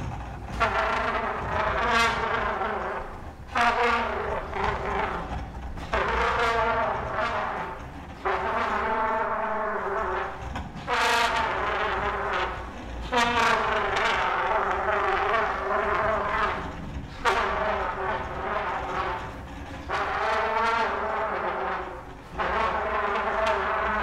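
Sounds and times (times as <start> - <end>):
trumpet long held notes: 0.0 - 24.0.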